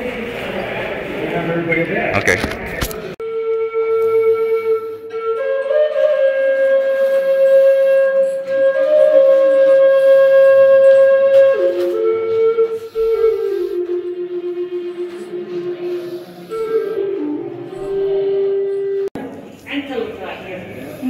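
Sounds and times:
slow flute melody: 3.2 - 19.2.

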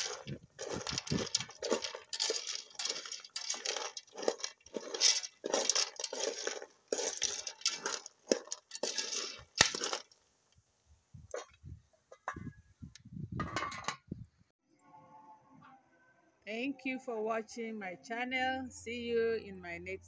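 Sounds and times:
palm kernels rattling in metal pot: 0.0 - 10.2.

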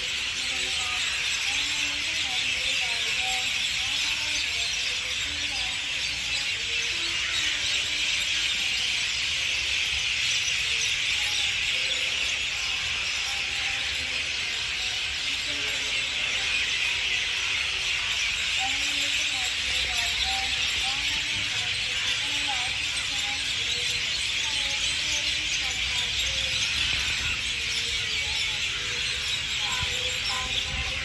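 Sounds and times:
insect chorus drone: 0.0 - 31.0.

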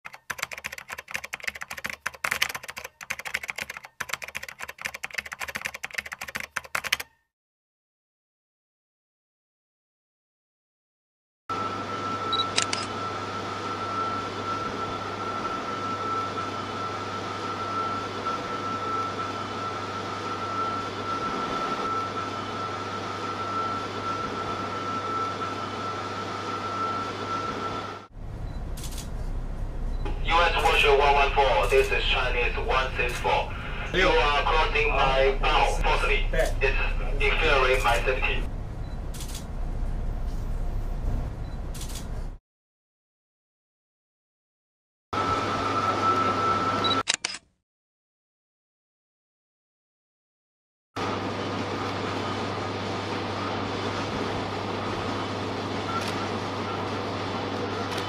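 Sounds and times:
computer keyboard typing: 0.1 - 7.2
ship machinery hum: 11.5 - 42.4, 51.0 - 58.0.

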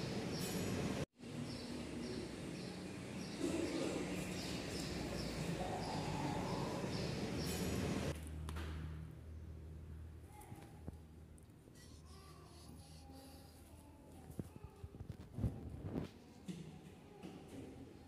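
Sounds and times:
steady background noise: 0.0 - 18.0
small bird chirping: 11.8 - 13.6.

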